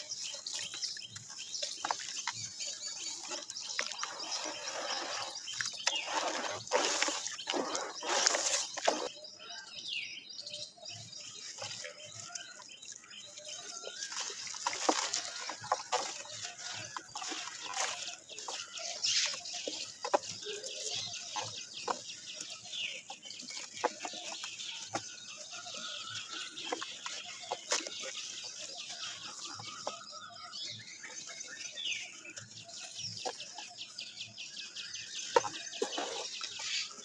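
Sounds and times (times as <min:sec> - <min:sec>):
water sloshing in a basin: 0:00.0 - 0:09.2, 0:11.0 - 0:34.0
dirt crumbling into water: 0:11.6 - 0:30.2
chickens clucking: 0:35.3 - 0:37.0.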